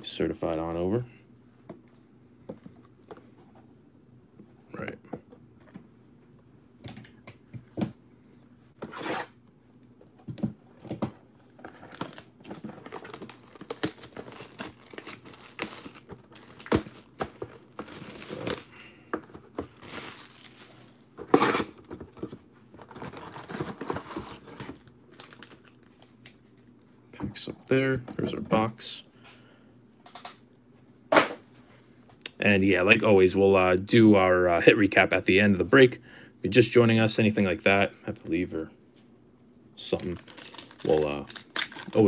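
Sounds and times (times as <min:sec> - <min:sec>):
plastic wrap crinkling and ripping: 0:11.7 - 0:18.9, 0:19.6 - 0:21.8, 0:22.8 - 0:26.0, 0:39.8 - 0:42.0.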